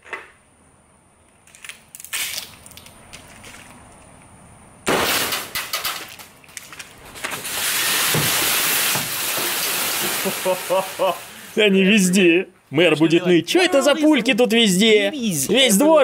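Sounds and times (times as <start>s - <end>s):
pellets pattering on roof and leaves: 5.5s - 11.6s.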